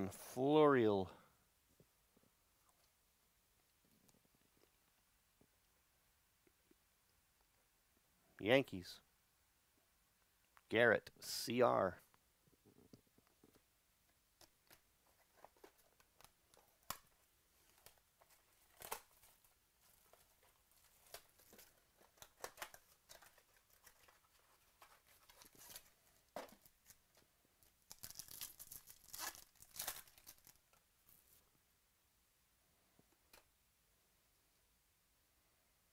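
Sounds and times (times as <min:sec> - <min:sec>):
foil pack crinkling and tearing: 0:17.6 - 0:27.0, 0:27.9 - 0:30.6.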